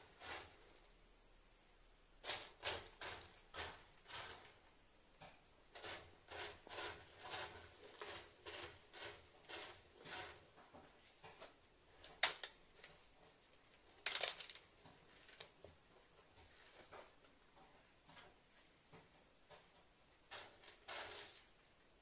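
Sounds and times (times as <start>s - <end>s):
cat scratching litter: 0.0s - 0.8s, 2.2s - 4.6s, 5.7s - 10.6s, 20.3s - 21.5s.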